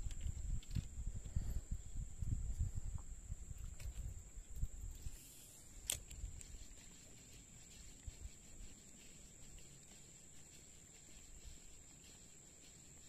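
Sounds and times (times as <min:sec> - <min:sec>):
high-pitched drone of forest insects: 0:05.0 - 0:13.0.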